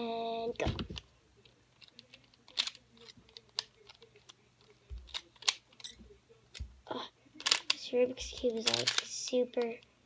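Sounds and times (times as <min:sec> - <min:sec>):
plastic puzzle pieces clicking: 0:01.8 - 0:06.6, 0:07.4 - 0:09.8.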